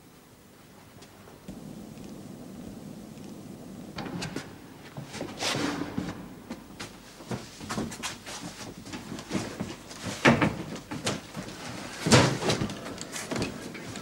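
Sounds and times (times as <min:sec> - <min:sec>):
person moving about scuffing: 0:04.4 - 0:10.2.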